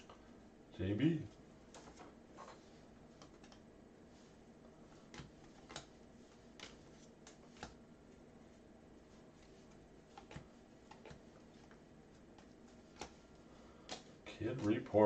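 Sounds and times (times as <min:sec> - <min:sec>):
trading cards clicking and tapping: 0:05.0 - 0:07.8, 0:09.4 - 0:14.9.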